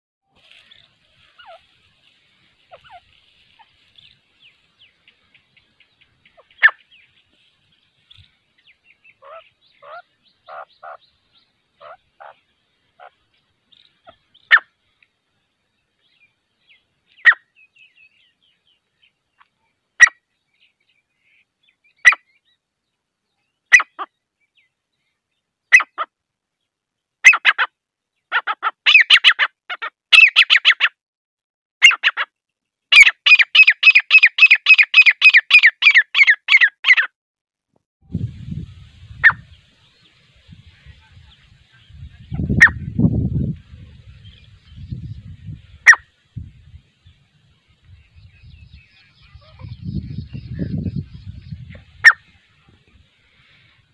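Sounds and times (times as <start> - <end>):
francolin calling: 0.4 - 7.4, 8.0 - 14.8, 32.9 - 37.1, 43.7 - 46.2, 47.0 - 52.6.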